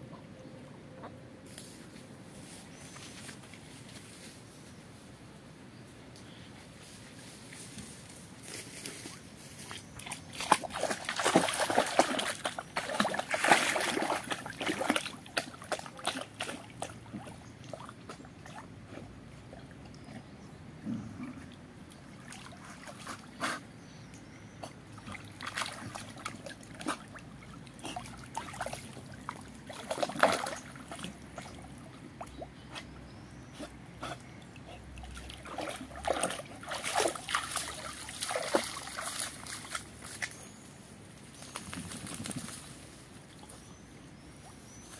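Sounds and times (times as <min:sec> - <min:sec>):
dog splashing in shallow water: 0:09.6 - 0:20.1, 0:21.9 - 0:23.4, 0:24.6 - 0:32.5, 0:34.7 - 0:40.3.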